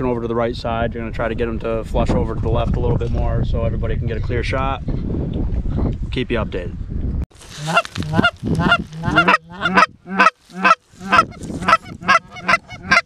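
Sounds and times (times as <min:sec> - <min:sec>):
goose honking: 0:07.6 - 0:13.0.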